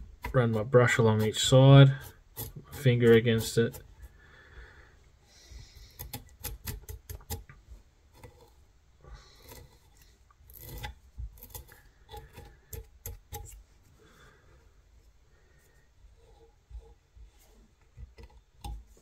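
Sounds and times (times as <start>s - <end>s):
brush scratching: 0.0s - 4.1s.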